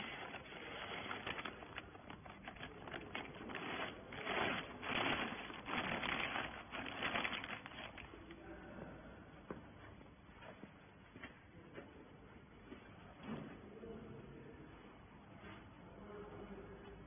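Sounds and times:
plastic bag crinkling and rustling: 0.0 - 8.4.

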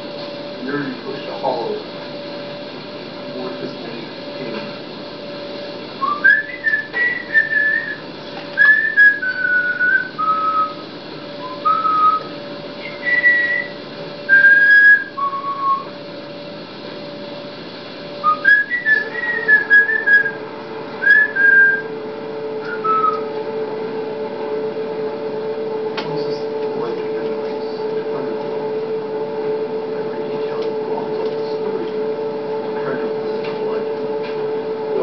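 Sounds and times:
steady low hum: 0.0 - 35.0
person whistling a slow tune: 6.0 - 8.0, 8.6 - 10.8, 11.4 - 15.9, 18.2 - 20.4, 21.0 - 21.9, 22.6 - 23.3.

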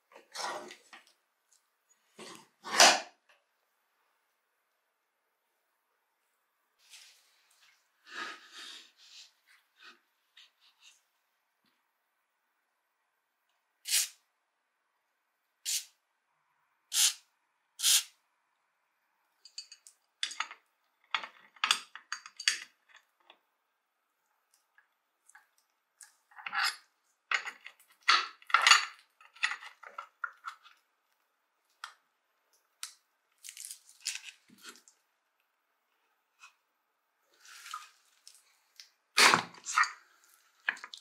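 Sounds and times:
aerosol can hissing: 13.9 - 14.2.

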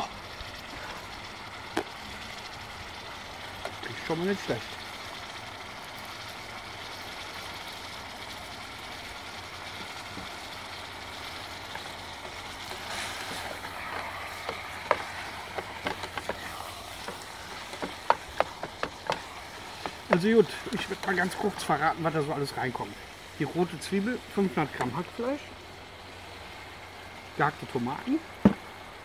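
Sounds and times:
meat sizzling in a pot: 0.0 - 29.0.

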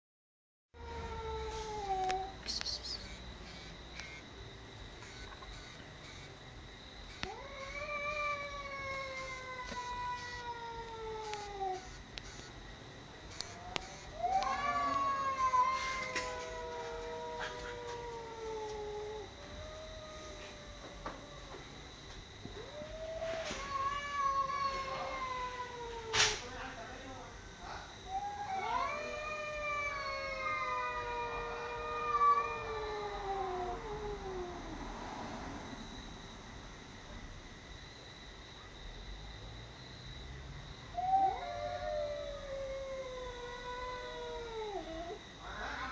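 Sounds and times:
cat yowling: 0.8 - 2.4, 7.2 - 11.9, 13.4 - 21.7, 22.6 - 26.4, 28.1 - 34.9, 40.9 - 45.9.

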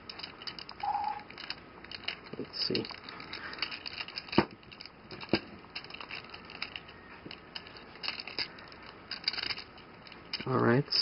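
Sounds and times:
plastic parts ticking and scraping: 0.0 - 11.0.

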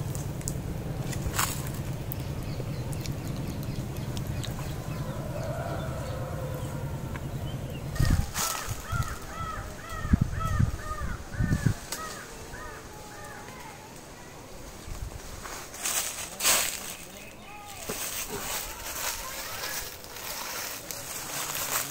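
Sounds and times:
steady low rumble: 0.0 - 17.0.

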